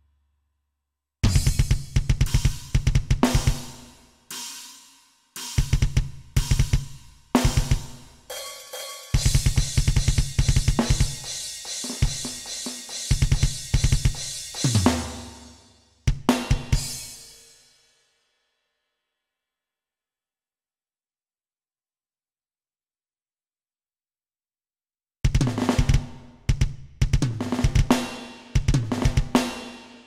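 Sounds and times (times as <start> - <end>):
metal drumming on electronic kit: 1.2 - 4.6, 5.4 - 15.4
cymbal ringing: 8.3 - 9.8.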